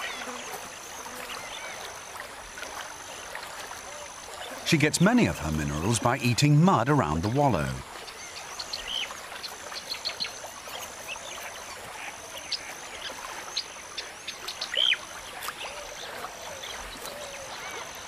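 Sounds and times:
outdoor hiss: 4.0 - 13.0.

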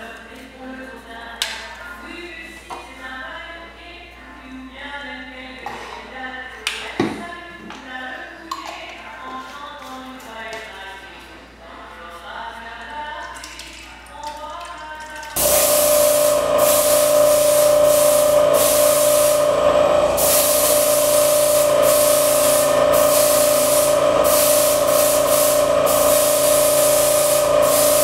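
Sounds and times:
compressor humming: 15.3 - 28.0
airbrush spraying hiss: 15.4 - 28.0.

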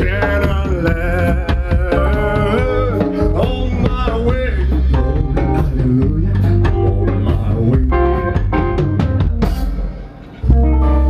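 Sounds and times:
person singing: 0.0 - 8.8
drum kit hitting hard: 0.0 - 11.0
electric bass: 0.0 - 11.0.

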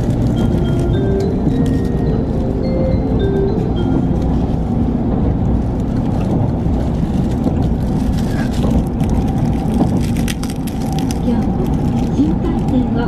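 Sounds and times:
train cabin low rumble: 0.0 - 13.0.

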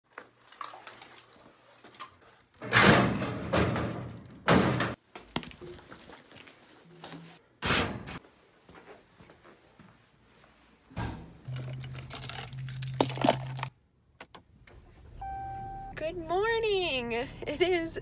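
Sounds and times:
metal locker door banging: 2.6 - 5.0.

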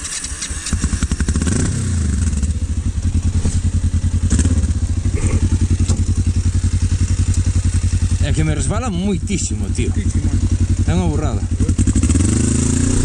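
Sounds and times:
motorcycle engine starting and idling: 0.0 - 13.0
knocks from motorcycle: 5.7 - 6.4.

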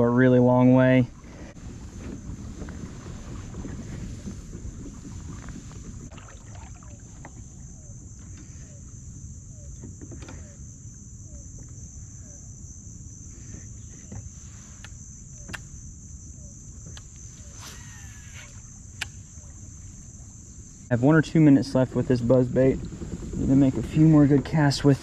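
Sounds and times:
low rumble: 0.0 - 9.8, 18.7 - 25.0
high-pitched insect drone: 6.7 - 25.0.

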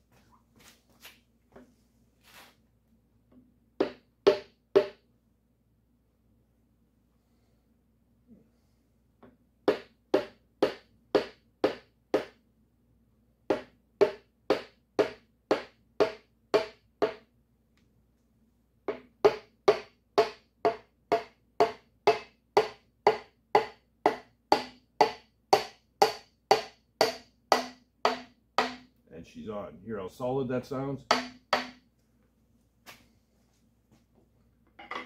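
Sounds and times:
wooden handle knocking on piston: 31.1 - 31.8.

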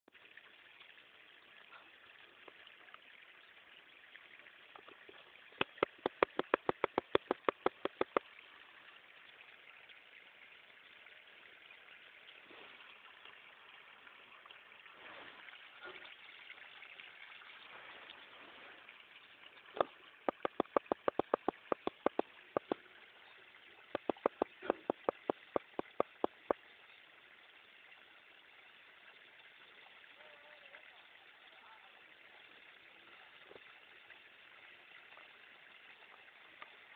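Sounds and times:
water flowing out of ground: 0.1 - 36.9
sharp clicks: 5.6 - 8.2, 19.8 - 22.8, 23.9 - 26.6.

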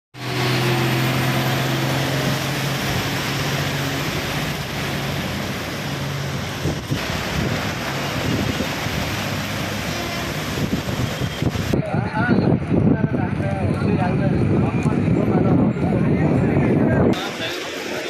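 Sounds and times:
truck engines droning: 0.2 - 18.0
water splashing around wheels: 0.2 - 18.0
wind buffeting microphone: 2.8 - 17.2.

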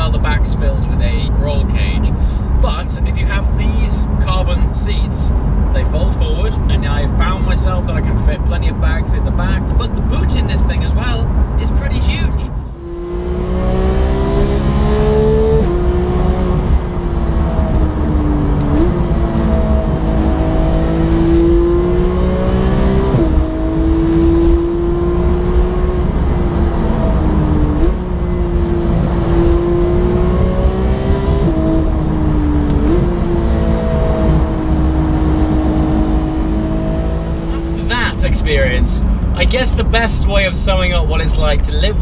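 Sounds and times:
car engine revving through gears: 12.4 - 41.2.

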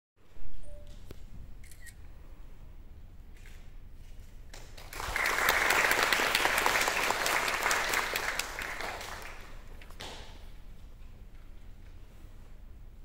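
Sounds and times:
audience clapping: 4.5 - 10.4.

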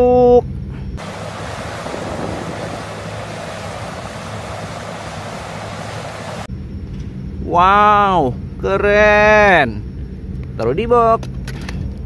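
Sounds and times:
excavator working: 1.0 - 6.5
wind on microphone: 1.0 - 6.5.

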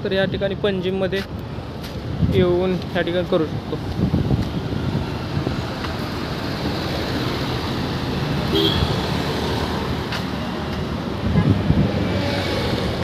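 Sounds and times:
road traffic rumble: 0.0 - 13.0
wind on microphone: 1.9 - 2.9, 3.5 - 7.2, 10.8 - 13.0.

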